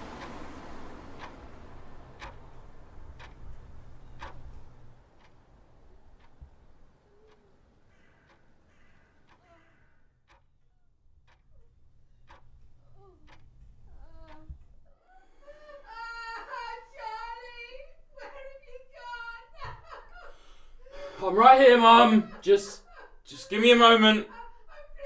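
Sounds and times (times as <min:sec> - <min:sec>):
clock ticking: 0:00.0 - 0:14.9, 0:21.1 - 0:25.0.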